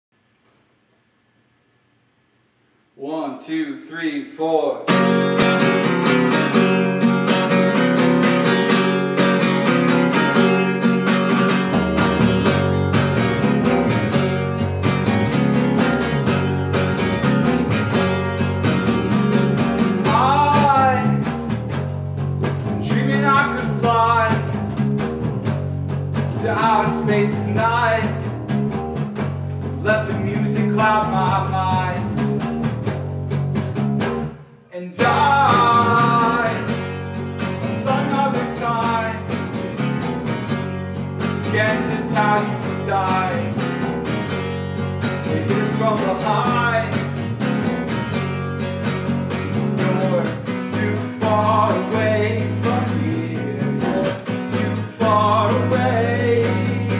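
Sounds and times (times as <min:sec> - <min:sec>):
acoustic guitar strumming: 0:04.9 - 0:56.9
electric bass guitar: 0:04.9 - 0:56.9
man singing: 0:20.0 - 0:21.2, 0:22.8 - 0:24.5, 0:26.4 - 0:28.2, 0:29.8 - 0:32.4, 0:34.7 - 0:36.9, 0:37.6 - 0:39.4, 0:41.4 - 0:43.8, 0:45.2 - 0:47.3, 0:49.4 - 0:56.9.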